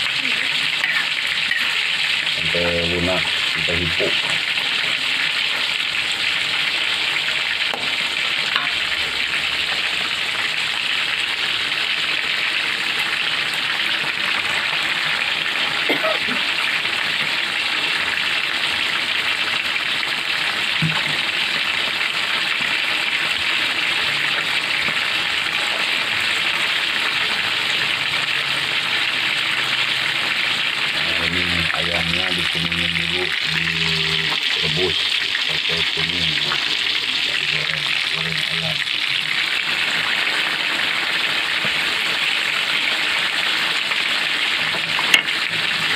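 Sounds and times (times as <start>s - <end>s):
food sizzling in a wok: 0.0s - 45.9s.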